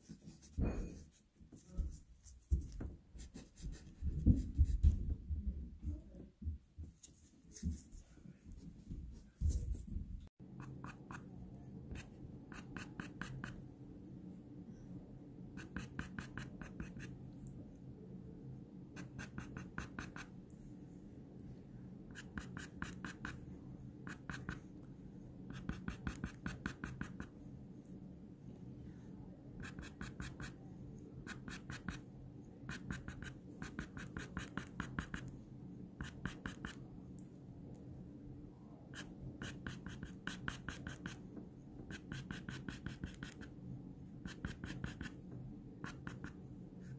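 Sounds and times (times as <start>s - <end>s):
low steady hum: 0.0s - 46.9s
soft low thumps: 3.7s - 7.0s
pencil scratching on paper: 10.6s - 11.3s, 11.9s - 13.6s, 15.6s - 17.2s, 19.0s - 20.3s, 22.1s - 23.4s, 24.0s - 24.6s, 25.5s - 27.3s, 29.6s - 30.6s, 31.2s - 32.0s, 32.7s - 35.3s, 36.0s - 36.8s, 38.9s - 41.2s, 41.8s - 43.5s, 44.2s - 45.2s, 45.8s - 46.9s.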